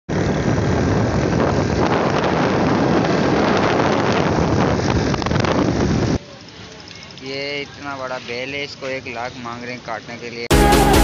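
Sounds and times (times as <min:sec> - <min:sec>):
wind buffeting microphone: 0:00.1 - 0:06.2.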